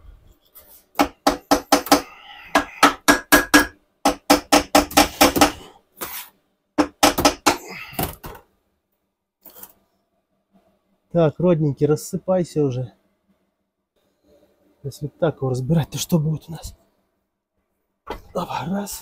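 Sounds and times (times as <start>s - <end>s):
hammer striking metal: 1.0s - 5.6s.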